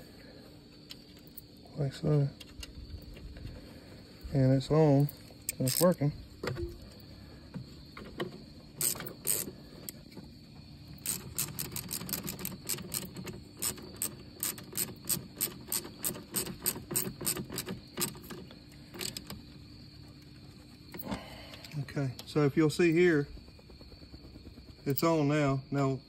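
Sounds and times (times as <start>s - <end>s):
ratchet wrench clicking: 5.5s - 6.1s, 8.8s - 9.5s, 11.0s - 18.3s.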